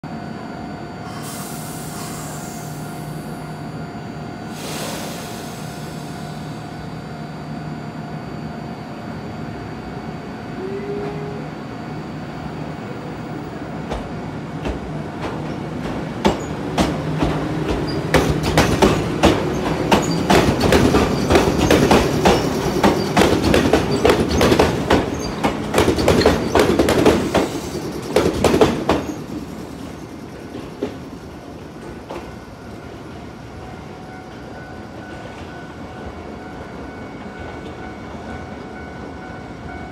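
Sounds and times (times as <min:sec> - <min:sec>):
electric train hum: 0:00.0 - 0:39.9
train rumble: 0:12.6 - 0:39.9
train wheel clicks over rail joints: 0:13.9 - 0:29.2.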